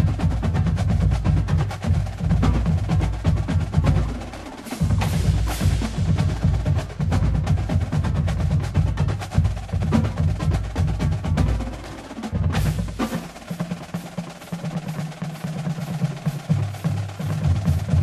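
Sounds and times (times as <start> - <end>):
bass drums: 0.0 - 18.0
snare drum strokes: 0.0 - 18.0
loud accented drum hit: 4.7 - 8.3.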